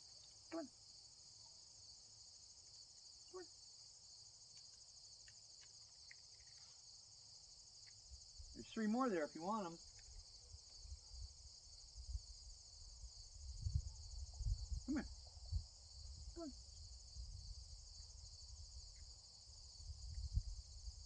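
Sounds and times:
crickets chirring: 0.0s - 21.0s.

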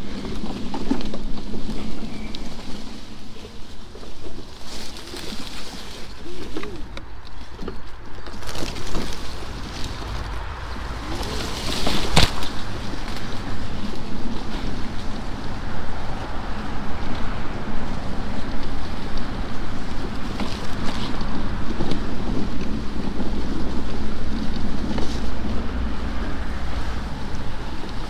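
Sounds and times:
scattered crackles: 0.0s - 28.0s
tyres rumbling over rough ground: 0.0s - 28.0s
wind noise on microphone: 0.0s - 28.0s
sharp crack: 8.2s - 14.2s.

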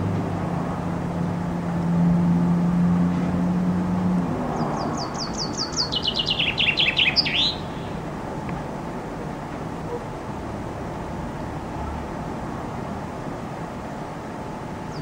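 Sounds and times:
chaffinch singing: 4.4s - 8.4s, 14.8s - 15.0s.

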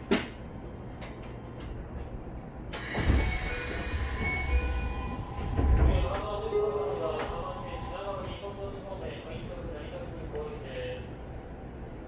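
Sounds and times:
low rumble of stopped train: 0.0s - 12.0s
train doors sliding open: 2.6s - 7.6s.

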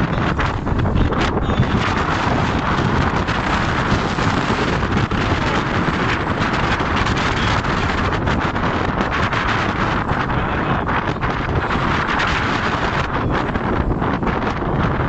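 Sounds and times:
choppy waves rushing: 0.0s - 15.0s
wind buffeting microphone: 0.0s - 15.0s.

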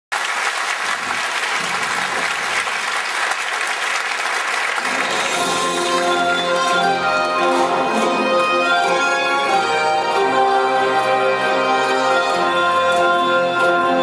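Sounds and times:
audience applauding: 0.1s - 8.9s
music with long held notes: 4.8s - 14.0s.

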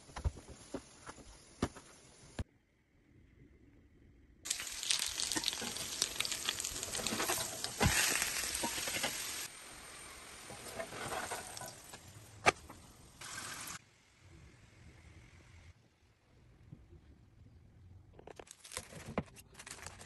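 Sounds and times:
flatbread sizzling on grill pan: 4.5s - 12.0s.

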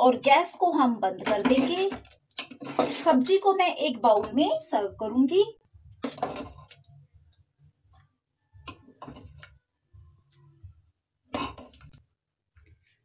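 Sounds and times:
metal ladle scraping pressure cooker: 1.2s - 3.4s.

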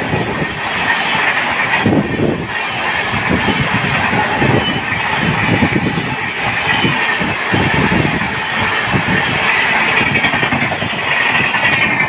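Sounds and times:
train wheels rushing on rails: 0.0s - 12.0s
wheels clattering over rail joints: 0.0s - 12.0s.

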